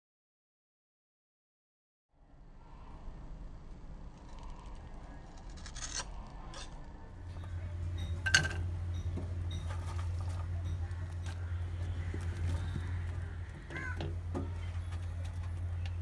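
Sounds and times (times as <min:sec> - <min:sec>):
steady low hum: 0:02.1 - 0:16.0.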